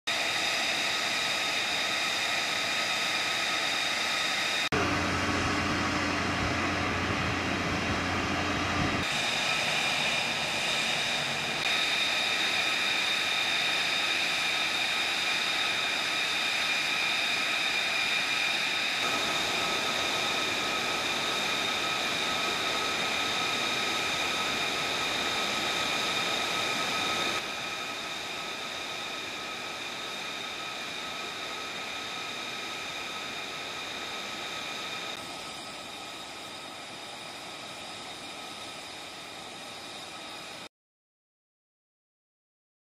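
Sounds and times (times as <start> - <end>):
jet engines idling whine: 0.1 - 40.7
low hum: 4.7 - 11.7.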